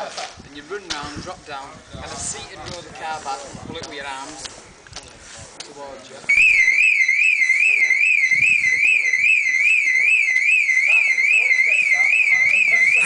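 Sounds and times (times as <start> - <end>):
faint voices: 0.0 - 13.0
electronic warbling alarm: 6.3 - 13.0.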